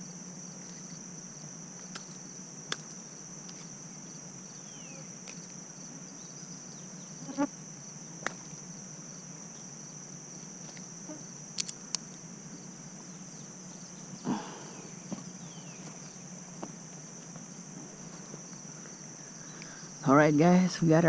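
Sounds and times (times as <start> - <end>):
insects chirping: 0.0 - 21.0
handling noise: 0.6 - 4.3, 5.2 - 5.7.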